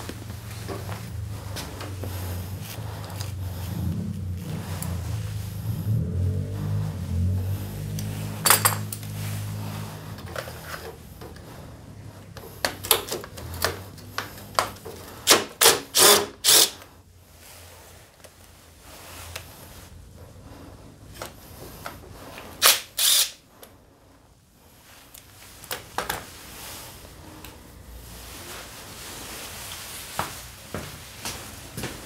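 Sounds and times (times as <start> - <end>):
cordless drill spinning: 15.2 - 16.9, 22.6 - 23.4.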